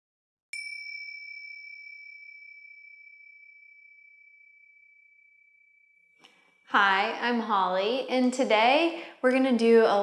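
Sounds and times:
chime ringing: 0.6s - 6.7s.

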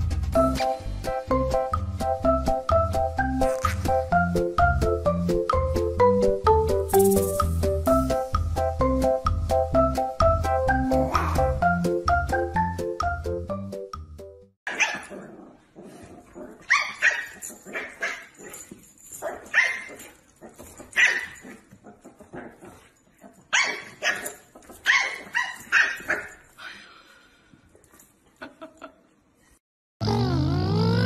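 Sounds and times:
dog barking: 14.7s - 15.3s, 16.7s - 18.6s, 19.2s - 20.2s, 21.0s - 21.6s, 23.5s - 26.4s.

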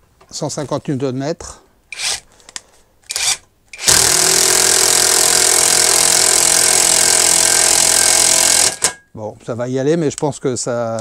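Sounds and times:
impact driver hammering: 3.1s - 9.0s.

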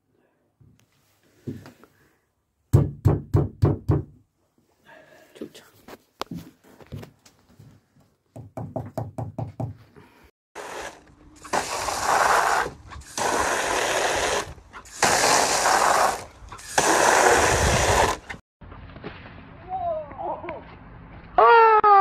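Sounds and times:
hose nozzle spraying water into pool: 10.6s - 18.4s.

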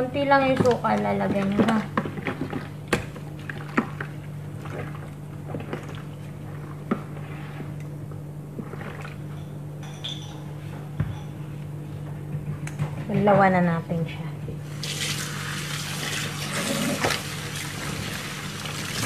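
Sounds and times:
steady low hum: 0.0s - 19.0s
wet squelching and sloshing: 0.5s - 9.4s, 14.6s - 19.0s.

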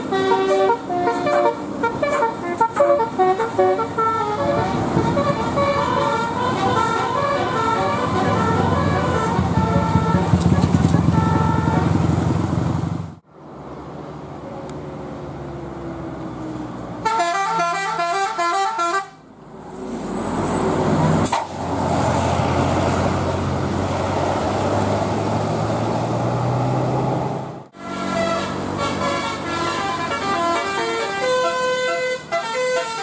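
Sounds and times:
bus horn playing melody: 0.0s - 12.1s, 17.0s - 19.2s, 27.7s - 33.0s
bus diesel engines running: 0.0s - 33.0s
road noise: 0.0s - 33.0s.

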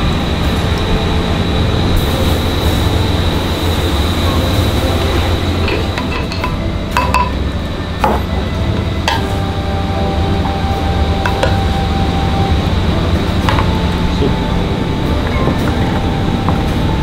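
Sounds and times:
rice paddle and dishes clinking: 5.6s - 9.4s.

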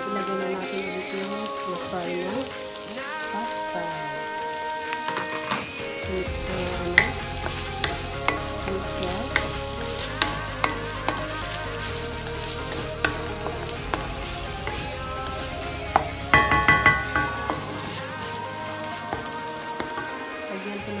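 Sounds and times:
food sizzling in a wok: 0.0s - 21.0s
spatula tapping a pan: 7.0s - 11.4s, 12.7s - 18.0s, 19.1s - 20.2s.

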